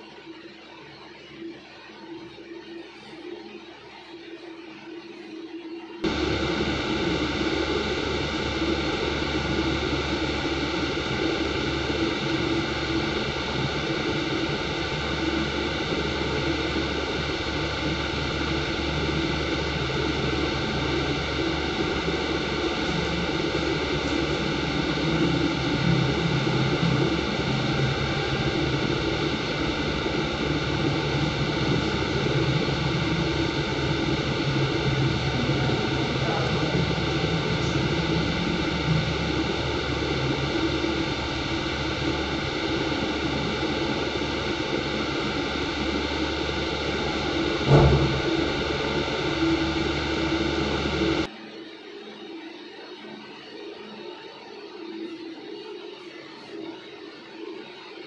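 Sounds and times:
constant hum: 0.0s - 51.3s
loud whooshing machine noise: 6.0s - 51.3s.

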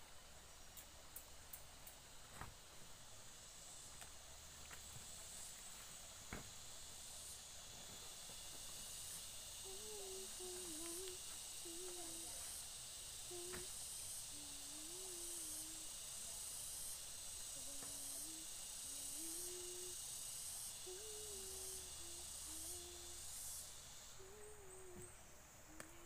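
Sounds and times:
steady high hiss: 0.0s - 26.0s
person humming: 9.6s - 12.6s, 13.2s - 16.4s, 17.4s - 23.5s, 24.1s - 26.0s.

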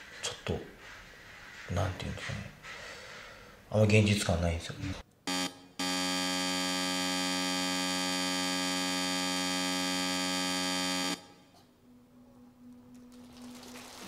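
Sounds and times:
electric buzzer: 5.3s - 11.4s.

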